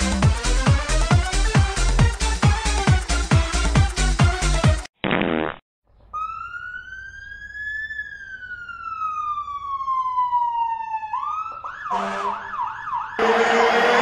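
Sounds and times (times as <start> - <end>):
electronic dance music: 0.0 - 4.9, 13.2 - 14.0
siren-like tone rising and falling: 6.2 - 14.0.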